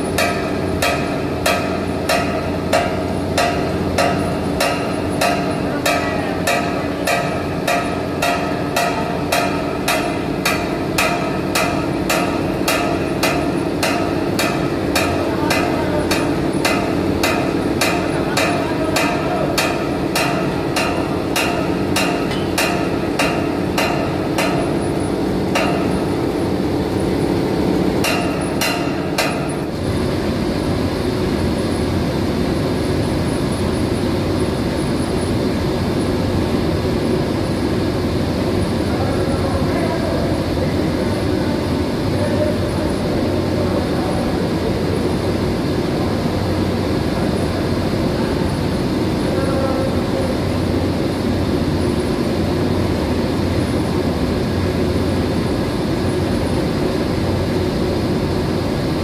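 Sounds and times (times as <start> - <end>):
pumps humming: 0.0 - 59.0.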